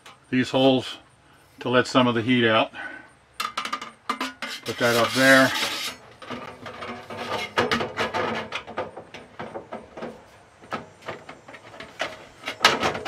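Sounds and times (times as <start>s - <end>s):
metal flange scraping on pipe: 3.4s - 8.8s.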